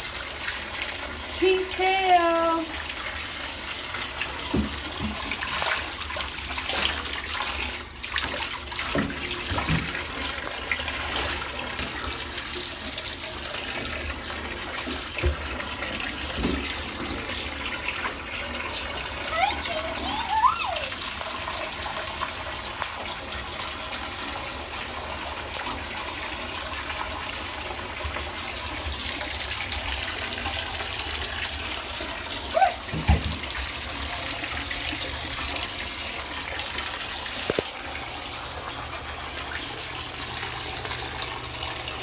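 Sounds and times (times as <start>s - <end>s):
tap water running into bathtub: 0.0s - 42.0s.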